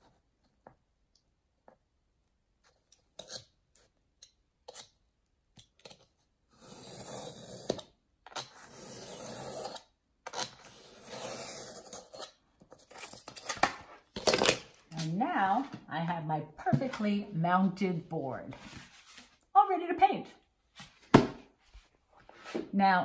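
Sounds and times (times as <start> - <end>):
knife cutting along a ruler: 6.5 - 13.1.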